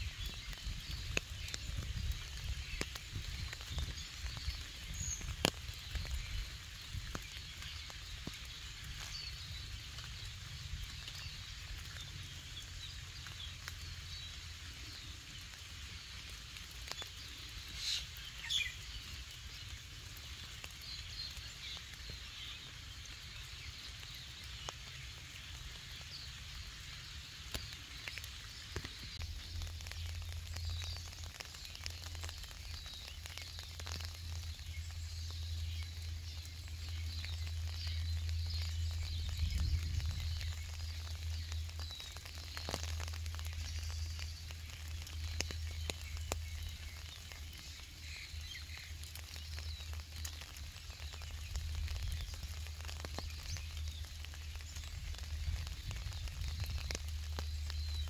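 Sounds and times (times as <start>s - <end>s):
small birds chirping: 0.0s - 58.0s
steady low rumble: 34.0s - 48.8s.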